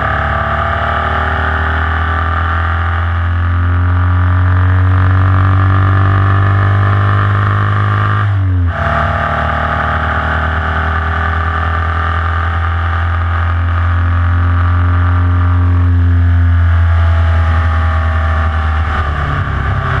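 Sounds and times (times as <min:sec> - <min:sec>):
race car engine pulling hard: 0:00.0 - 0:20.0.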